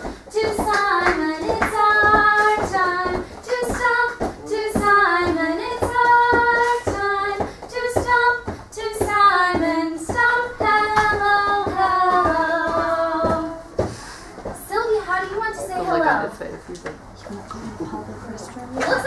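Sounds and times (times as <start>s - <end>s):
woman and children singing: 0.0s - 13.9s, 14.5s - 16.0s
feet stomping on floor: 0.0s - 14.9s.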